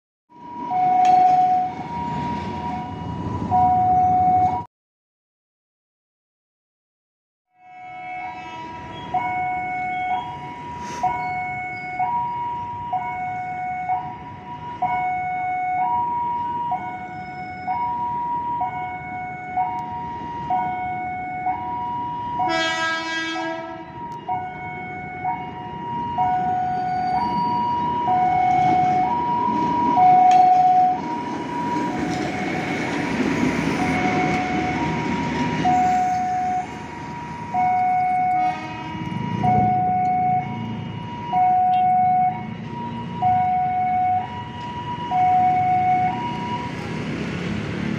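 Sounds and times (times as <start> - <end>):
train horn: 7.6 - 9.1, 22.4 - 23.9, 38.3 - 39.3
train rumbling: 27.2 - 41.4, 45.7 - 47.9.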